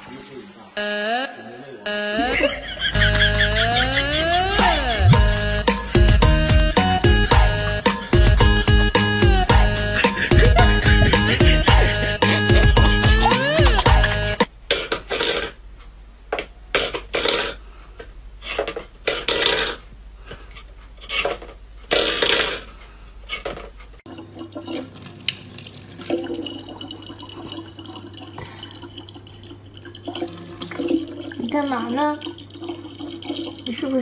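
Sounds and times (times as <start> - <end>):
low hum: 2.2 - 14.4
kitchen tap running: 24.1 - 34.0.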